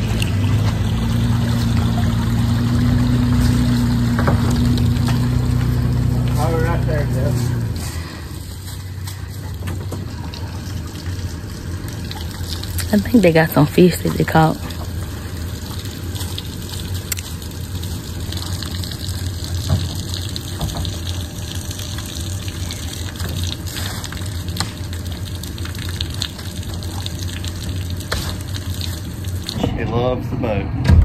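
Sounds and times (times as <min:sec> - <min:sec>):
water splashing onto concrete: 0:00.0 - 0:29.6.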